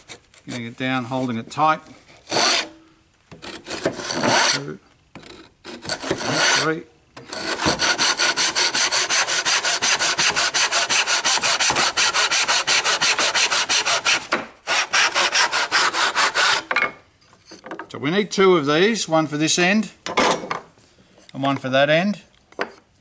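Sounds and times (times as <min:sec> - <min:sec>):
hand saw cutting wood: 0:02.2 - 0:16.7.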